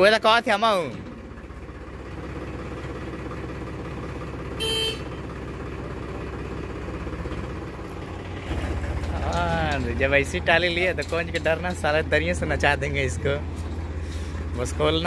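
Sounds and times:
tractor diesel engine idling: 0:00.0 - 0:15.0
tractor horn toot: 0:04.5 - 0:05.4.

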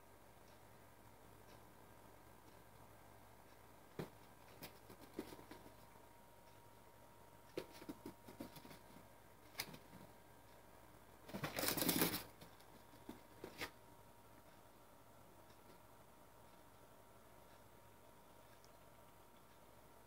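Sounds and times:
pets scuffling: 0:11.3 - 0:13.7.

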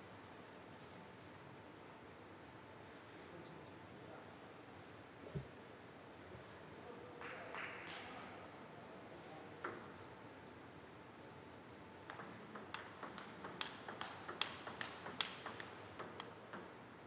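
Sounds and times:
table tennis ball clicking: 0:12.1 - 0:16.8.

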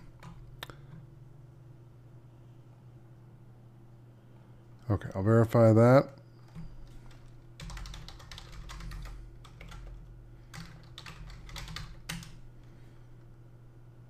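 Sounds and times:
keyboard typing: 0:00.0 - 0:01.0, 0:06.4 - 0:12.4
low steady hum: 0:00.0 - 0:14.0.

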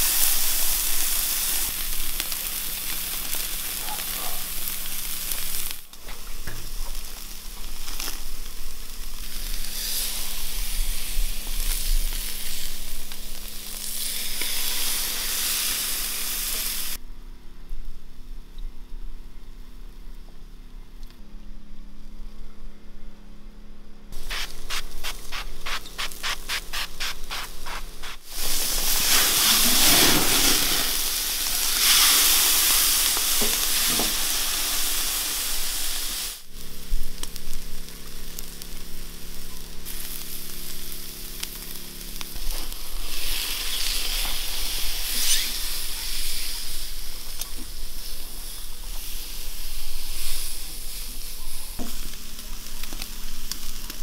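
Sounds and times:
fat sizzling on hot charcoal: 0:00.0 - 0:17.0, 0:24.2 - 0:54.0.

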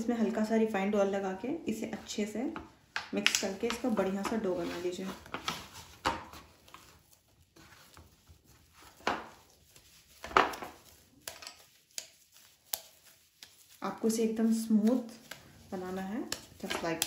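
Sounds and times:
dough slapped in a bowl: 0:02.9 - 0:04.3, 0:10.2 - 0:13.6, 0:16.1 - 0:17.0.

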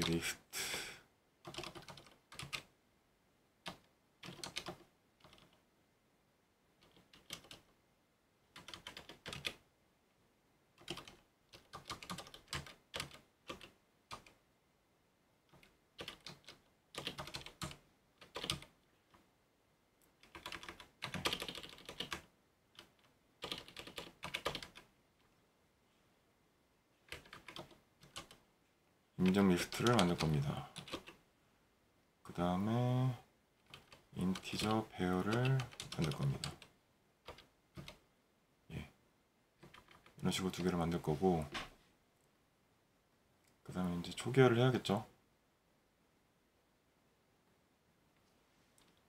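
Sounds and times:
typing on computer keyboard: 0:01.4 - 0:02.7, 0:03.6 - 0:05.6, 0:06.8 - 0:07.7, 0:08.5 - 0:09.6, 0:10.8 - 0:14.4, 0:15.5 - 0:18.7, 0:20.2 - 0:24.9, 0:27.1 - 0:28.4, 0:29.2 - 0:31.2, 0:33.6 - 0:38.0, 0:39.6 - 0:40.8.

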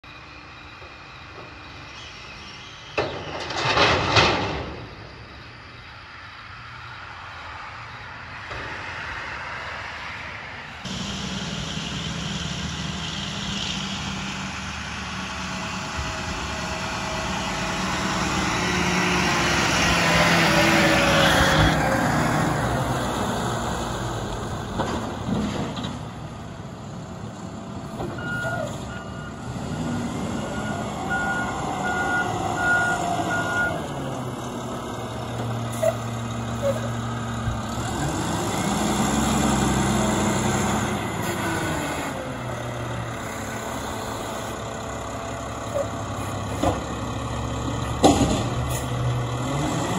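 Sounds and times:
garbage truck diesel engine: 0:00.0 - 0:07.5, 0:10.5 - 0:49.9
reversing alarm beeps: 0:28.2 - 0:33.8.

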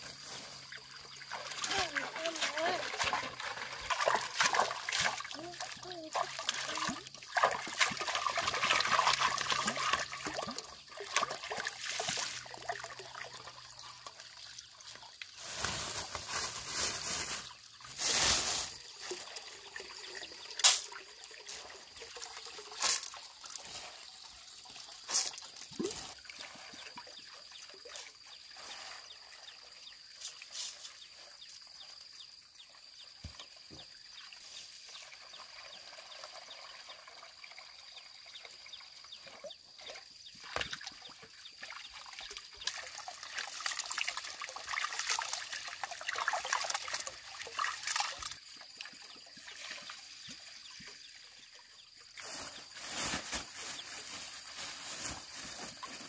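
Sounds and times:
water trickling into pot: 0:01.0 - 0:15.6, 0:18.8 - 0:27.9
rice scooped from plastic bag: 0:15.3 - 0:19.0, 0:52.2 - 0:56.0.

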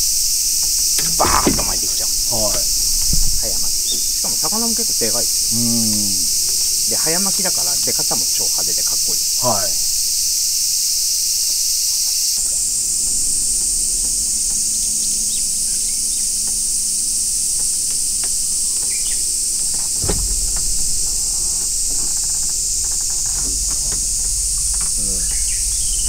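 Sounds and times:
cicadas droning: 0:00.0 - 0:26.0
low thump: 0:01.0 - 0:04.2, 0:20.0 - 0:22.4.

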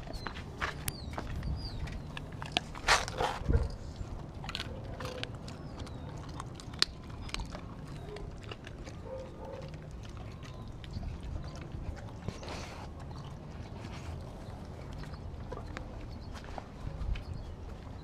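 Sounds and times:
teeth clicking: 0:00.0 - 0:13.5
dog chewing food: 0:00.0 - 0:18.0.

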